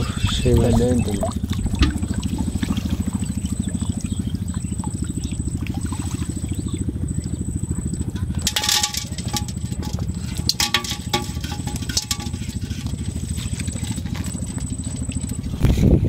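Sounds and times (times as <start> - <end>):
low fluttering rumble: 0.0 - 16.0
snails clinking in metal pot: 8.2 - 15.3.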